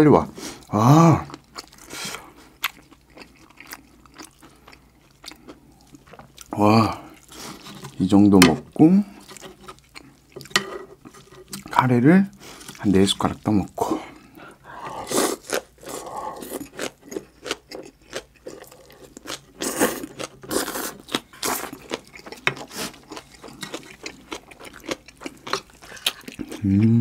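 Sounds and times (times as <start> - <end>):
person chewing crunchy food: 0.4 - 27.0
wet mouth sounds: 24.4 - 27.0.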